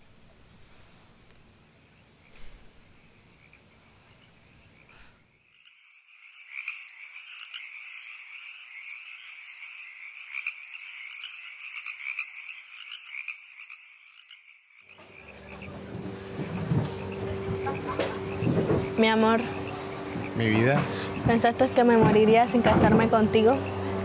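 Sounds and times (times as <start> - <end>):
frogs calling: 1.7 - 24.0.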